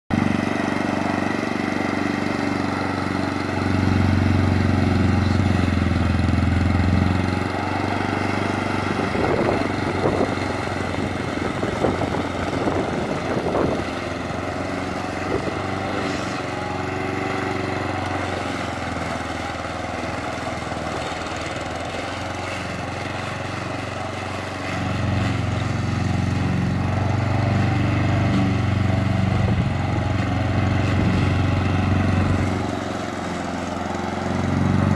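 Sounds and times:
lawn mower engine running: 0.1 - 34.9.

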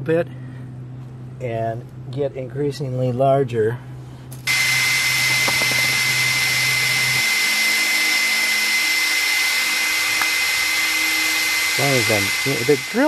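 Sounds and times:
cordless drill whining: 4.5 - 13.0.

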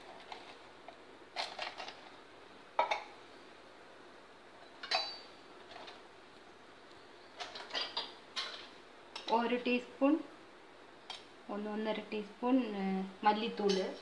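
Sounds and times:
spoon clinking on steel bowls: 4.8 - 5.3, 13.6 - 14.0.

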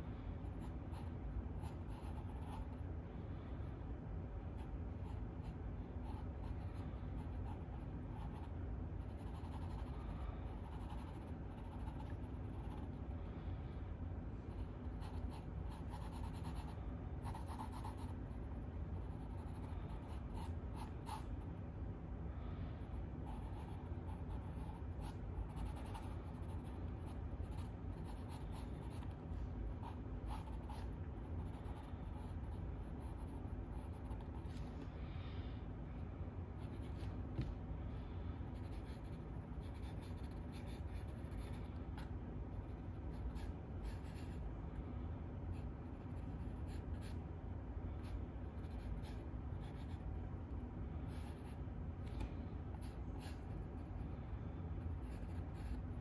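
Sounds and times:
low background hum: 0.0 - 56.0.

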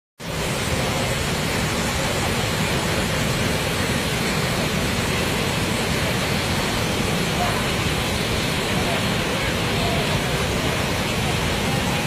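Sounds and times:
waterfall rushing: 0.2 - 12.0.

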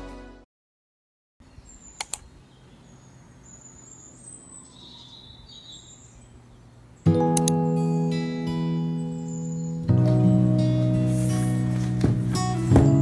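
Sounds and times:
faint birds chirping: 1.4 - 7.4, 8.5 - 10.6
sharp clicks: 2.0 - 2.3, 7.3 - 7.6
acoustic guitar music: 7.0 - 13.0.

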